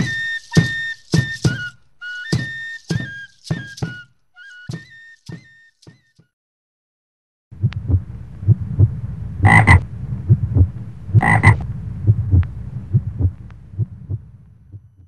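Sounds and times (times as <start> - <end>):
frogs croaking: 9.4 - 9.8, 11.2 - 11.6.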